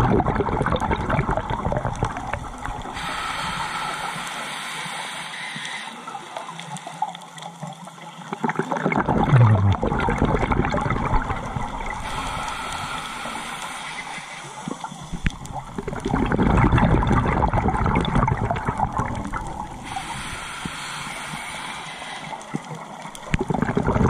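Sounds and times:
gurgle of exhaled bubbles: 0:00.0 - 0:03.0, 0:08.2 - 0:12.6, 0:14.6 - 0:20.0, 0:22.6 - 0:24.0
regulator inhale hiss: 0:02.8 - 0:07.5, 0:11.9 - 0:15.3, 0:19.8 - 0:23.2.

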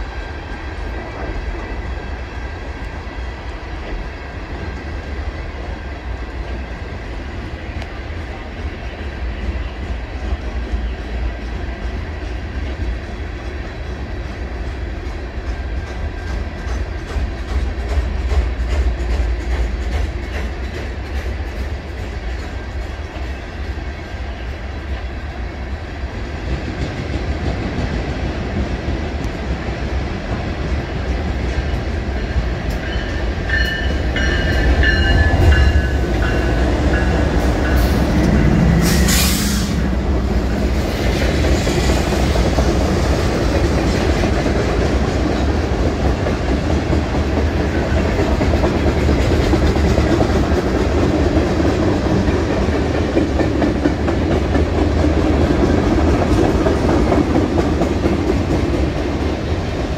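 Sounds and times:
freight train rumbling past: 0:00.0 - 0:59.9
train wheels squealing: 0:31.6 - 0:39.9
short loud hiss: 0:38.8 - 0:39.9.

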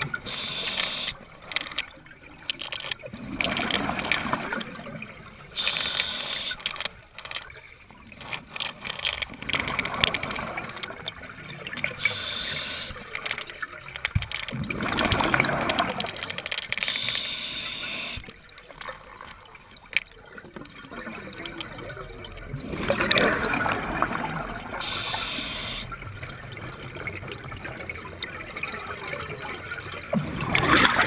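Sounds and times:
regulator hissing: 0:00.2 - 0:01.2, 0:05.6 - 0:06.6, 0:12.0 - 0:13.0, 0:16.9 - 0:18.2, 0:24.8 - 0:25.9
exhaled bubbles burbling underwater: 0:03.0 - 0:05.6, 0:13.8 - 0:16.5, 0:19.0 - 0:31.0.

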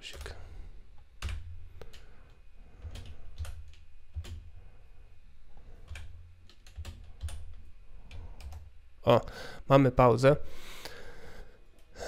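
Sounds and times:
keyboard key presses: 0:02.8 - 0:04.5, 0:05.8 - 0:08.7.

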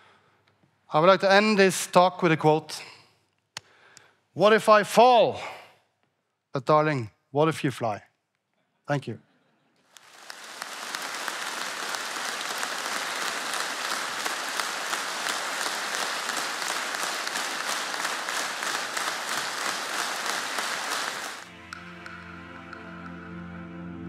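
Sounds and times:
audience applauding: 0:09.9 - 0:22.8.

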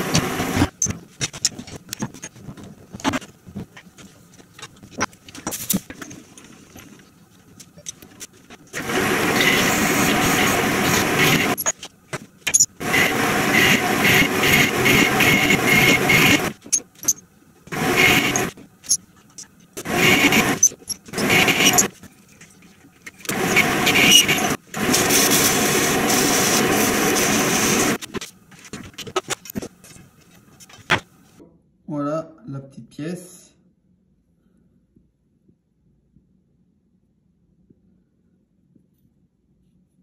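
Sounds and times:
metal lathe running with faint whine: 0:08.8 - 0:11.6, 0:12.8 - 0:17.2, 0:17.8 - 0:18.6, 0:19.8 - 0:22.4, 0:23.3 - 0:28.0.

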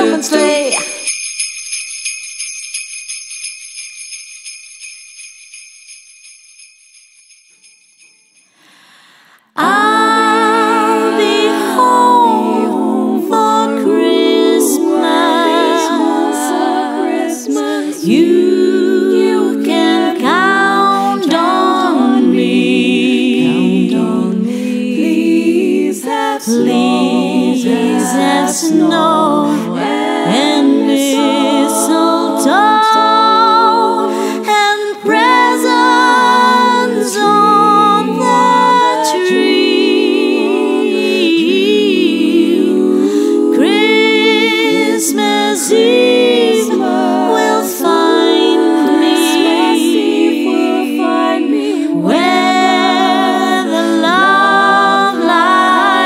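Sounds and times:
female a cappella group singing: 0:00.0 - 0:01.2, 0:09.4 - 0:56.0
small bells jingling: 0:00.0 - 0:08.8.

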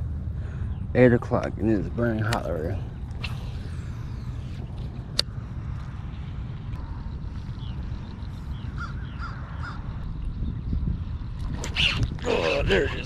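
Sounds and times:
steady low rumble: 0:00.0 - 0:13.0
crows cawing: 0:08.8 - 0:09.8.

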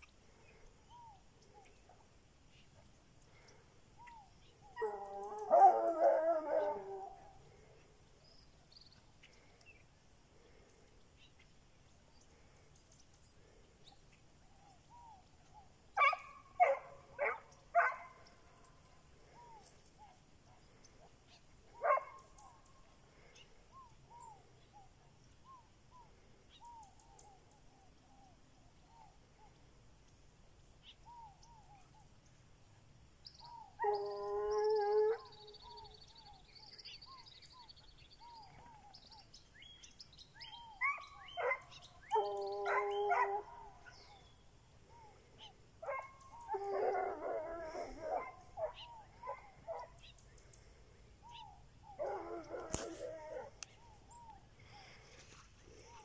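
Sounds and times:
hounds baying: 0:04.0 - 0:07.4, 0:16.0 - 0:18.4, 0:19.3 - 0:22.6, 0:33.5 - 0:35.8, 0:40.4 - 0:50.2, 0:51.2 - 0:56.0
dogs barking: 0:16.0 - 0:18.3, 0:21.8 - 0:22.2, 0:40.8 - 0:44.2, 0:45.8 - 0:50.0.

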